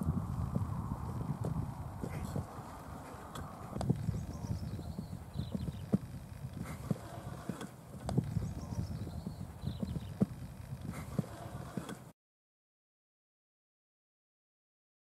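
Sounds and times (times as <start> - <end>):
horse hoofbeats on sand: 0.4 - 12.1.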